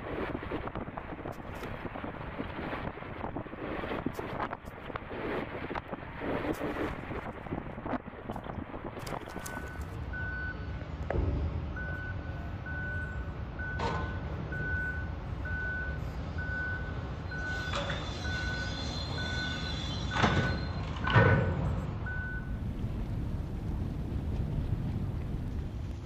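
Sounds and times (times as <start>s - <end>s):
diesel engine rumble: 4.2s - 26.0s
backup alarm beeping: 9.2s - 10.8s, 11.6s - 21.4s, 22.0s - 22.6s.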